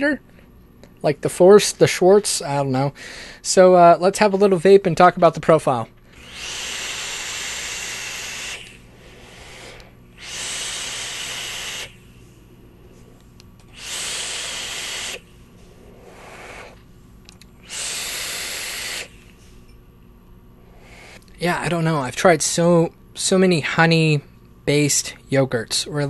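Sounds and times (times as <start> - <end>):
e-cigarette draw hiss: 6.5 - 12.0, 13.6 - 15.3, 15.9 - 16.8, 17.6 - 19.4, 20.8 - 21.2
breathy vapour exhales: 6.9 - 12.4, 13.7 - 16.8, 17.6 - 19.5, 20.7 - 21.2.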